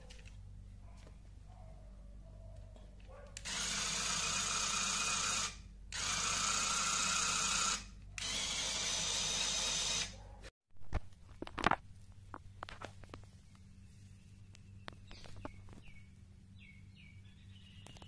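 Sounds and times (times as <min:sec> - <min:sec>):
small electric motor whirring: 0:03.4 - 0:10.2.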